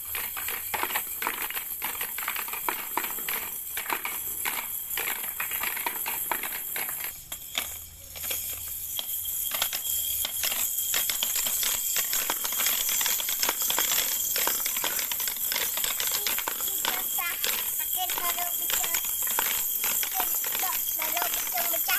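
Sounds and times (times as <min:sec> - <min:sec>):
plastic balls clattering down ramps: 0:00.0 - 0:21.9.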